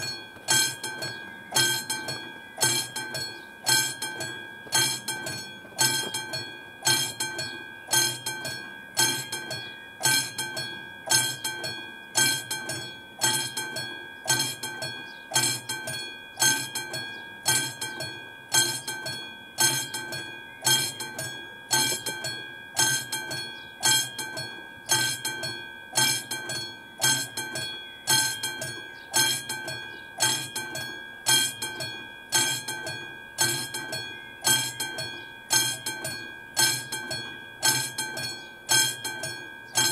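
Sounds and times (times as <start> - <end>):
level-crossing warning bell ringing: 0.0 - 39.9.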